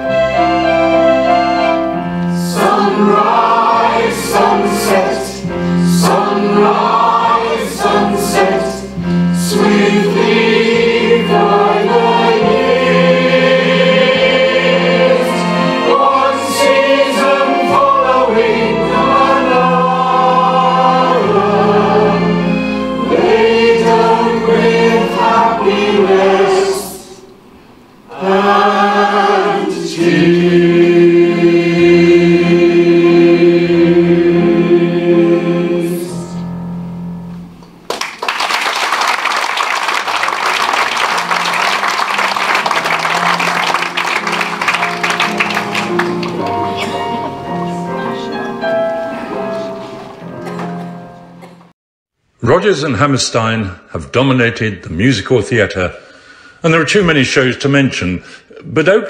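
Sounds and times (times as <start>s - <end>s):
choir singing: 0.0s - 27.4s, 28.0s - 36.7s, 40.3s - 51.5s.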